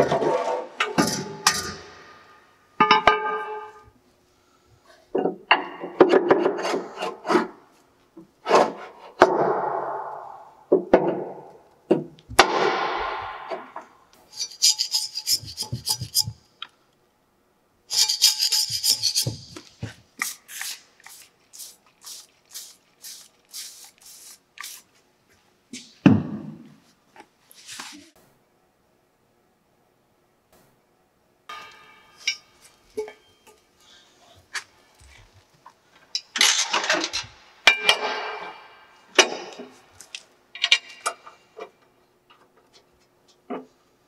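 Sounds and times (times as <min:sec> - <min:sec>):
scraper scraping metal: 0:14.3 - 0:16.4, 0:17.9 - 0:19.9.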